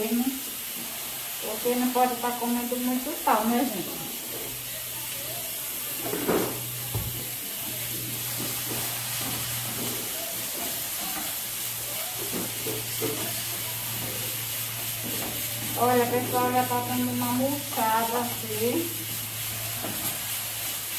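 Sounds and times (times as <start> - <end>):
greens sizzling in hot oil: 0.0 - 20.9
spoon stirring and scraping pan: 6.1 - 16.7, 18.9 - 20.4.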